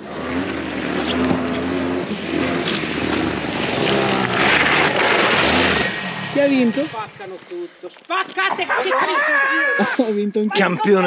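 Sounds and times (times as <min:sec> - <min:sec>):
go-kart engine passing: 0:00.0 - 0:07.5.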